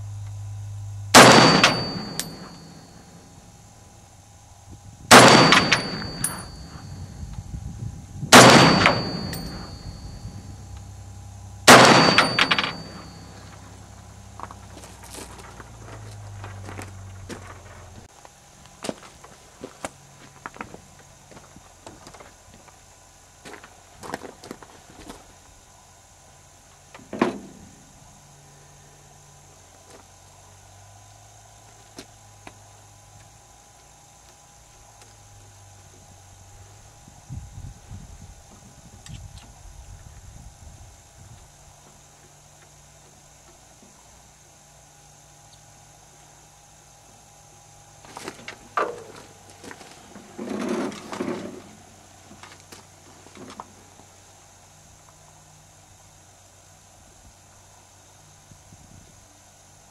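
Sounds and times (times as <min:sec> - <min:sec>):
scuffing rustle: 0:14.4 - 0:22.7.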